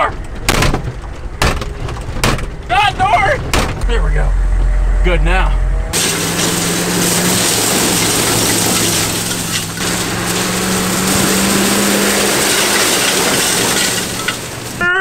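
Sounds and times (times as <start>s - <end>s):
diesel engine running: 0.0s - 15.0s
tyres crunching over gravel: 5.9s - 15.0s.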